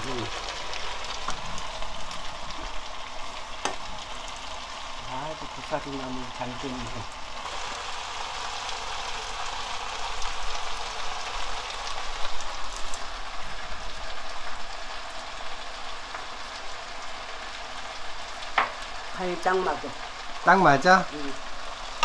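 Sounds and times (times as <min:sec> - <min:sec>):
crackles in frying pan: 0:00.0 - 0:22.0
frying hiss: 0:00.0 - 0:22.0.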